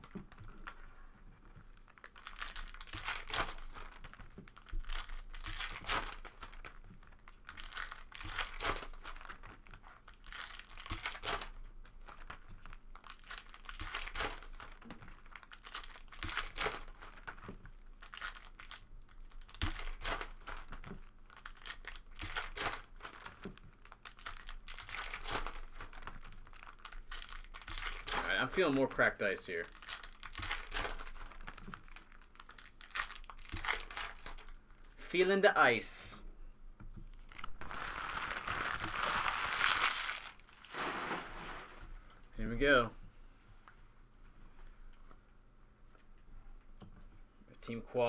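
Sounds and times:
foil wrappers crinkling and tearing: 1.8 - 34.6, 37.1 - 41.9.

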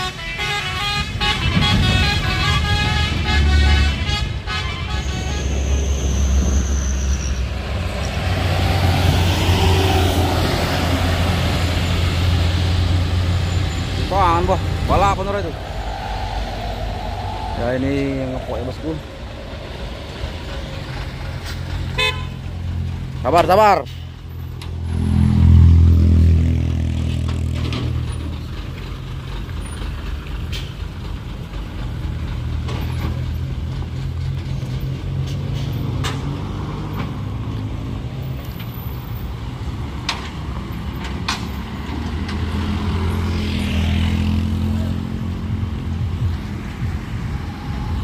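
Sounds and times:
truck diesel engine revving: 5.2 - 23.6.

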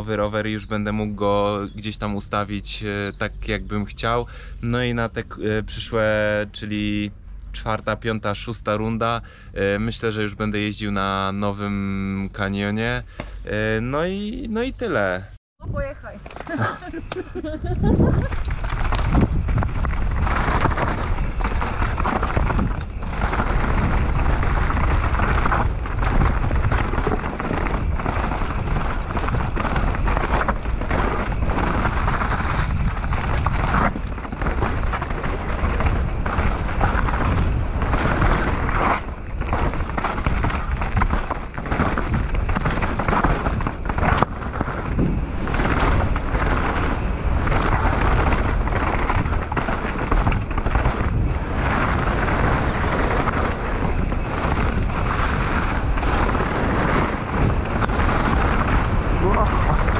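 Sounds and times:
bike tyres rolling over stones: 0.0 - 7.1, 7.7 - 14.6, 15.8 - 59.9
wind on microphone: 15.6 - 59.9
bike knocking and rattling: 15.8 - 59.9.

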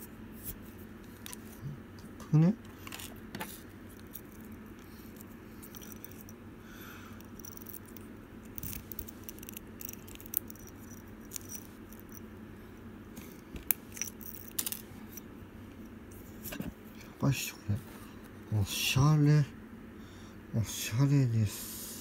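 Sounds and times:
low steady hum: 0.0 - 22.0
metal ball chain jingling: 5.6 - 6.4, 7.2 - 8.0, 8.6 - 12.2.

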